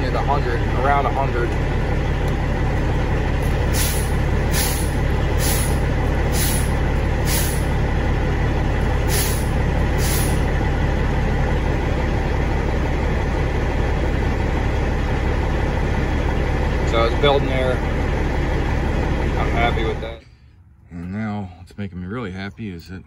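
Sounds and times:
diesel engine idling: 0:00.0 - 0:23.0
air compressor hisses: 0:03.7 - 0:06.7, 0:07.3 - 0:07.7, 0:09.1 - 0:10.4.

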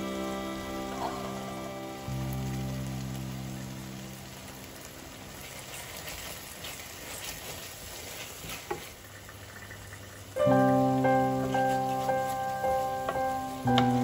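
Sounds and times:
background music: 0:00.0 - 0:04.9, 0:10.4 - 0:14.0
sauce sizzling in a frying pan: 0:00.0 - 0:14.0.

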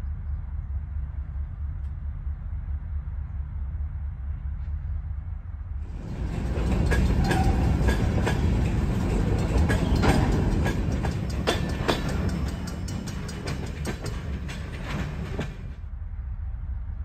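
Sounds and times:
train wheels rumbling on rail: 0:05.8 - 0:16.2
wheels clacking over rail joints: 0:05.9 - 0:15.8
wheel squeals: 0:06.0 - 0:13.4.

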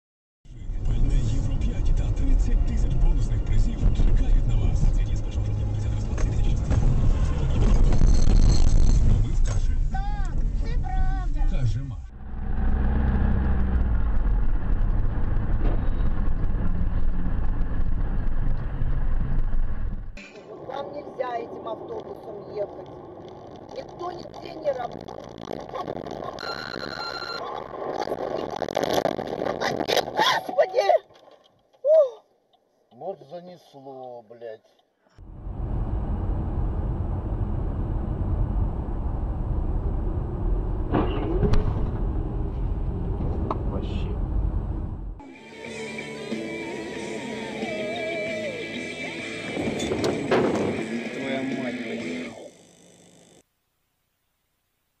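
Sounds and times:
car engine and road rumble: 0:00.5 - 0:30.4, 0:35.2 - 0:53.5.

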